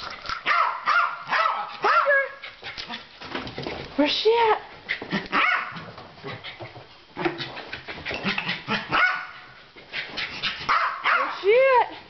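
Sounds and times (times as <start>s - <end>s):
small dog barking: 0.4s - 2.3s, 5.3s - 5.8s, 8.7s - 9.4s, 10.7s - 11.4s.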